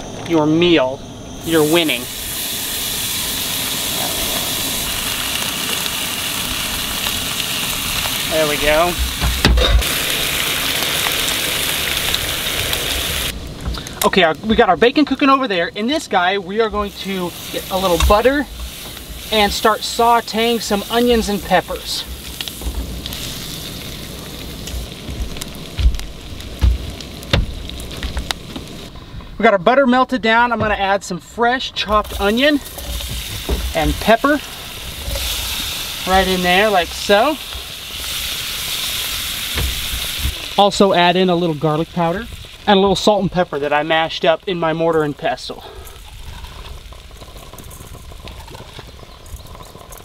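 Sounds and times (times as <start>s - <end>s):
bacon sizzling in a skillet: 1.4s - 28.9s, 32.0s - 50.0s
low thumps: 8.9s - 9.9s, 20.9s - 28.9s.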